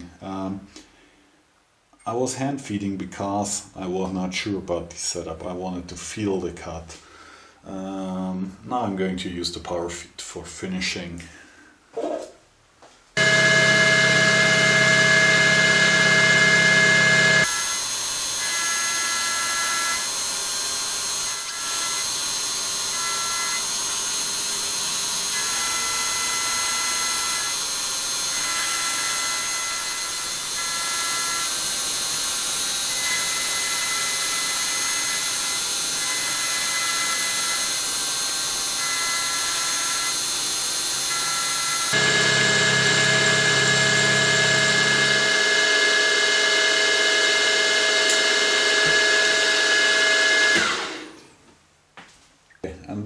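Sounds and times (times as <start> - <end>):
high ringing tones: 13.2 - 17.5
milling machine whine: 13.2 - 51.2.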